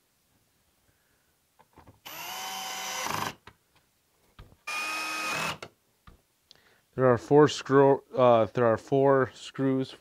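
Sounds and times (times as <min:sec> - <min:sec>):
cordless screwdriver motor whine: 0:02.1 - 0:03.4.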